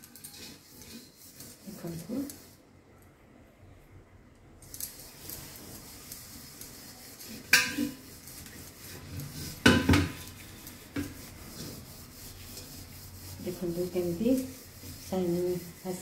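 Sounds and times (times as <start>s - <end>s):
scrubbing a copper pot: 0.0s - 2.6s, 4.8s - 16.0s.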